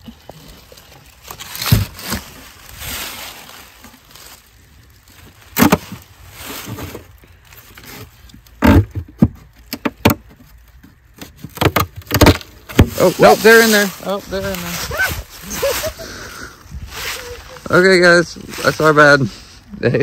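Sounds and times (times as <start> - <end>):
wood scraping: 0.0 - 19.7
knocks and clunks of wooden boxes: 1.5 - 2.3, 5.5 - 6.0, 7.8 - 13.3.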